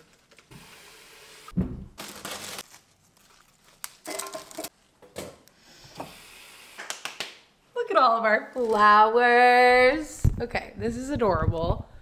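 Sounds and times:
plastic wrapping crinkling: 0:02.0 - 0:04.7.

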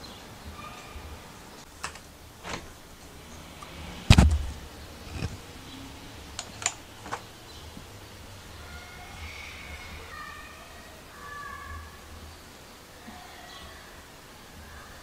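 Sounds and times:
window frame clicks and knocks: 0:01.8 - 0:02.8, 0:04.1 - 0:05.4
heavy thump: 0:04.1 - 0:05.4.

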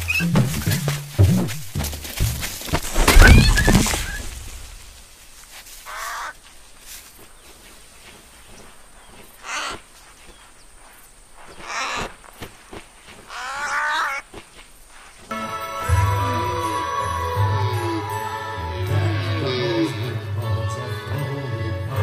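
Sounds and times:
loud thud: 0:00.3 - 0:05.0
cartoon bird cawing: 0:05.9 - 0:06.4, 0:09.4 - 0:09.8, 0:11.6 - 0:12.1, 0:13.3 - 0:14.2.

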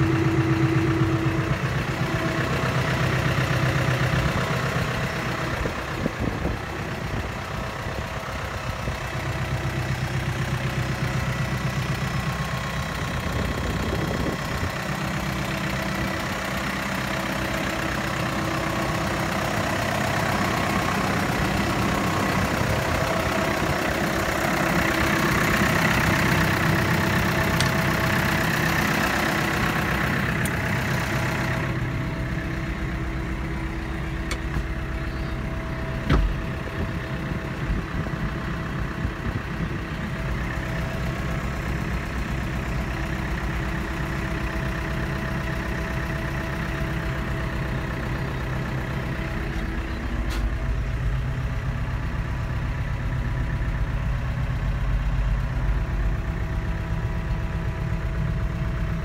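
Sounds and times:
tractor diesel engine idling: 0:00.0 - 0:59.0
thump: 0:36.1 - 0:36.4.

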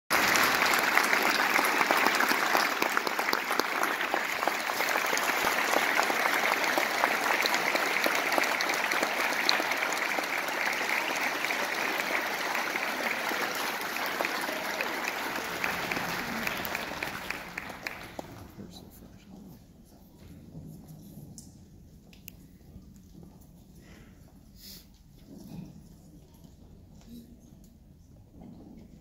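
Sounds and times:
large audience applauding: 0:00.1 - 0:18.8.

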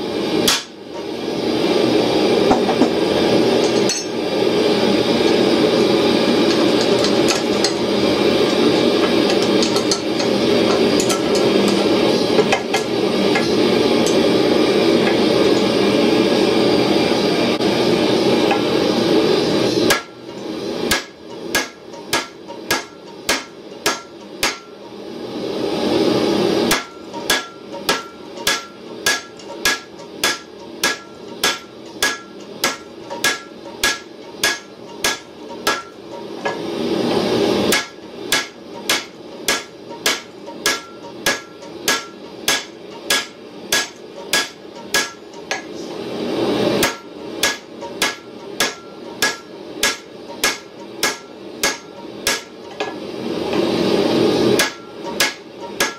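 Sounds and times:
hammer blows on hot steel: 0:26.6 - 0:45.7.

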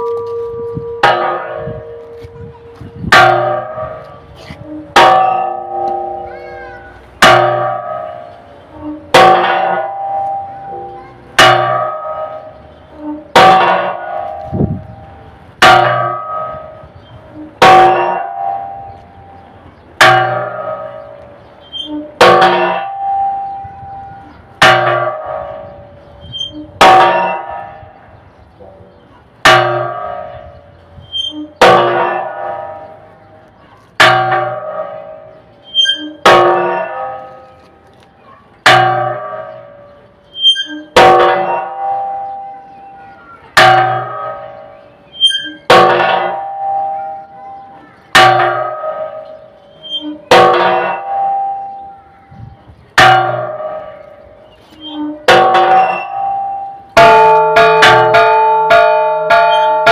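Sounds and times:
large church bell ringing: 0:00.0 - 0:59.9.

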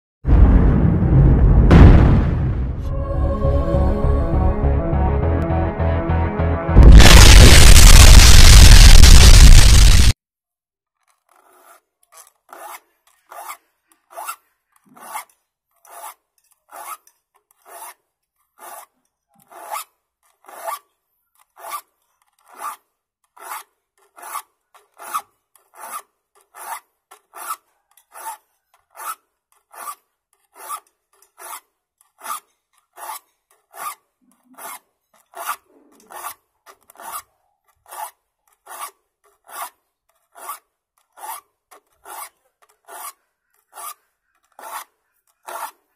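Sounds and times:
file rasping on saw teeth: 0:11.2 - 0:45.9.

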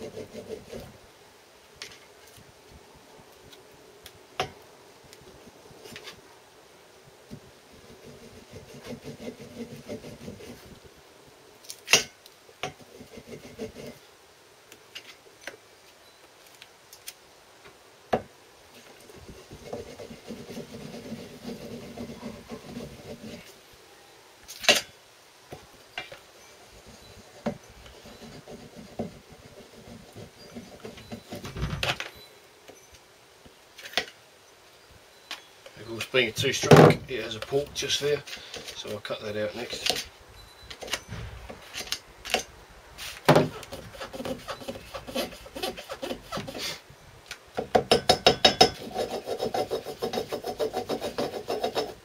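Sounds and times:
hammer tapping on metal: 0:47.6 - 0:48.8.

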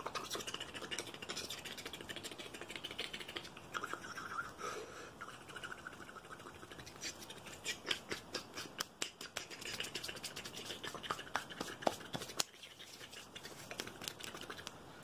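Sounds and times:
fingers tapping and scratching: 0:07.8 - 0:14.8.

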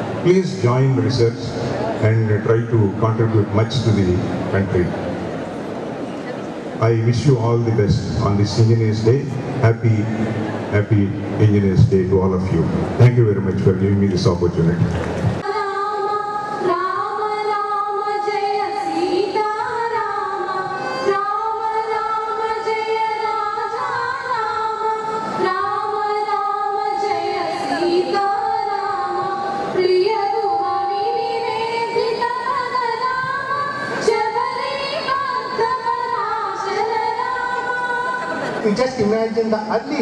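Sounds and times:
two women singing: 0:15.4 - 0:38.6.

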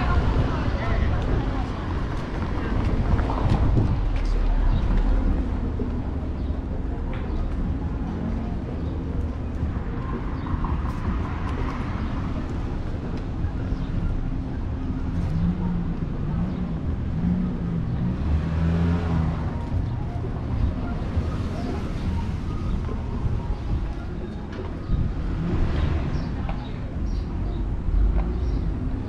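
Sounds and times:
car engines passing: 0:00.0 - 0:29.0
low hum of traffic: 0:00.0 - 0:29.0.

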